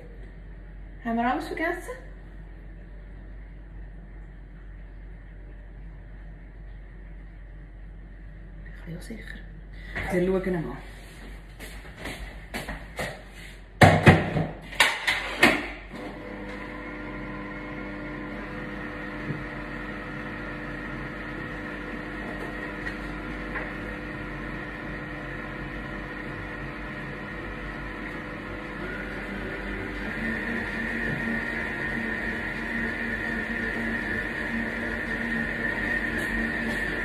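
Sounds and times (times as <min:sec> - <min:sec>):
stand mixer motor running: 0:16.0 - 0:37.0.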